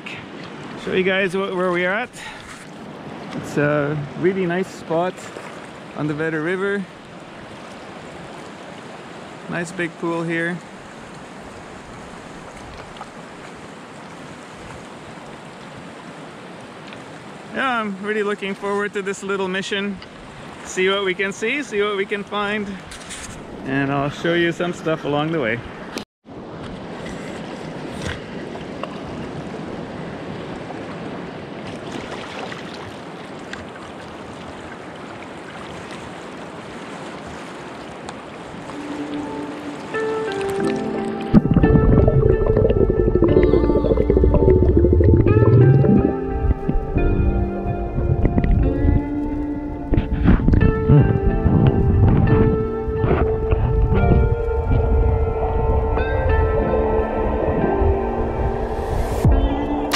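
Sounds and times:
water sloshing: 31.6s - 50.5s
music: 38.7s - 59.9s.

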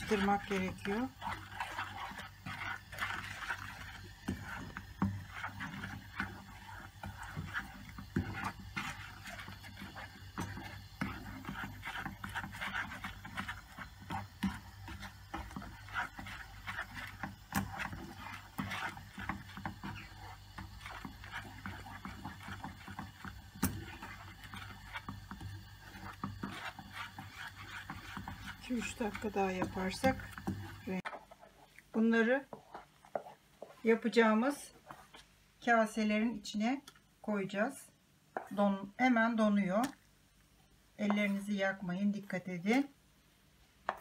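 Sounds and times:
wooden spoon scraping a pan: 0.0s - 36.7s, 38.3s - 40.0s, 41.0s - 42.9s.

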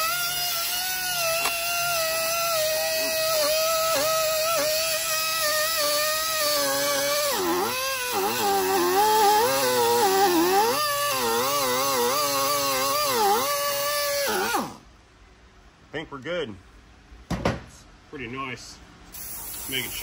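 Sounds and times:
die grinder whining: 0.0s - 14.8s.

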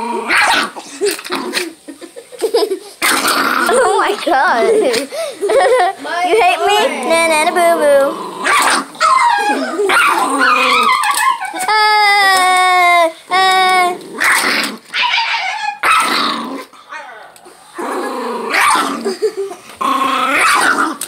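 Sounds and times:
small dog growling: 0.0s - 1.8s, 3.0s - 5.2s, 6.6s - 11.8s, 13.0s - 21.0s
dog whining: 6.7s - 16.1s
dog yips: 8.5s - 11.7s, 14.3s - 16.1s.

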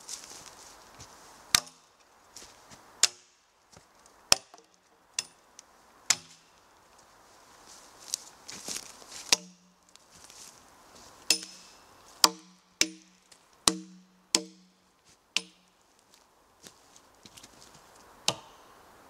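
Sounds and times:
hatchet chopping logs: 1.5s - 1.9s, 3.0s - 3.4s, 4.3s - 5.4s, 6.1s - 6.5s, 9.2s - 9.8s, 11.3s - 14.8s, 15.4s - 15.7s, 18.2s - 18.6s.

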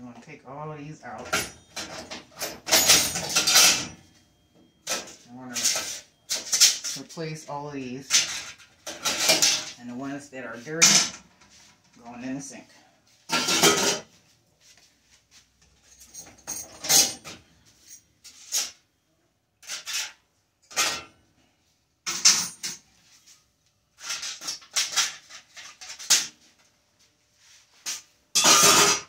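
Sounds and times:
metal burners and drip pans clanking: 1.0s - 7.4s, 8.0s - 9.8s, 13.3s - 14.2s, 19.6s - 21.2s, 27.9s - 29.0s.

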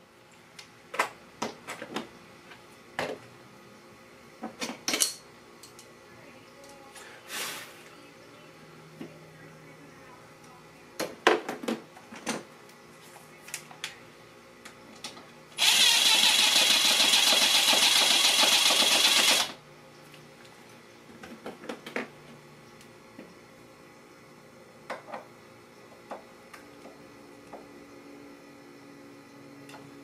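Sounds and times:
cordless drill running: 15.6s - 19.6s.

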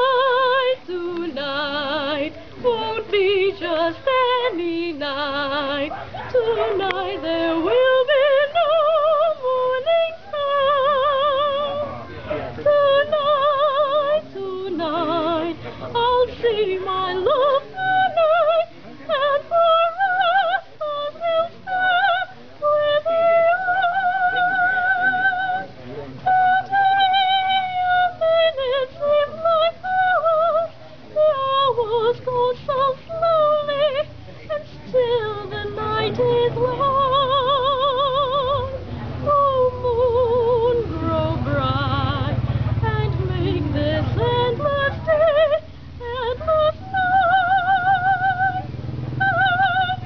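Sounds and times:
woman singing: 0.0s - 12.0s, 12.6s - 50.0s
low steady rumble: 12.5s - 50.0s.

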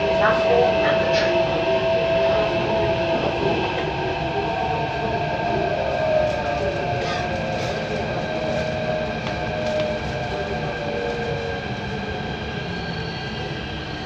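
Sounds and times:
train running rumble: 0.0s - 14.0s.

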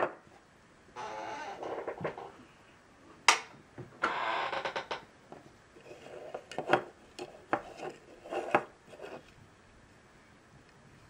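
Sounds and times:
plastic scraping on wood: 5.8s - 9.3s.

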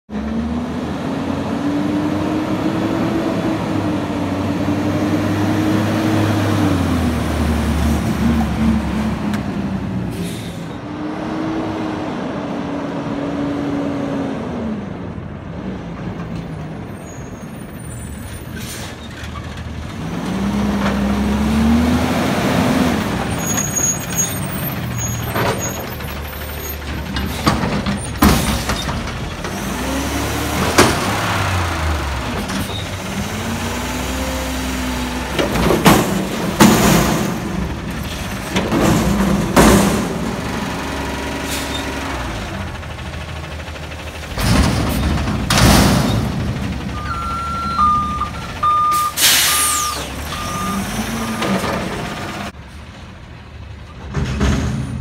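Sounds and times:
garbage truck diesel engine revving: 0.1s - 16.0s, 18.5s - 54.9s
air brake hissing: 10.1s - 10.8s, 48.9s - 50.2s.

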